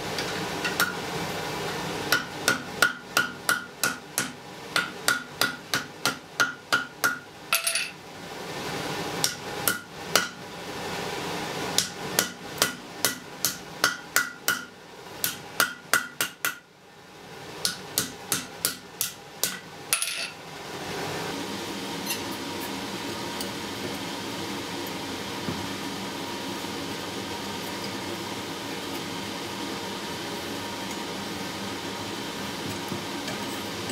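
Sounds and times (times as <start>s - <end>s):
hammer striking metal on anvil: 2.1s - 7.9s, 11.8s - 16.6s.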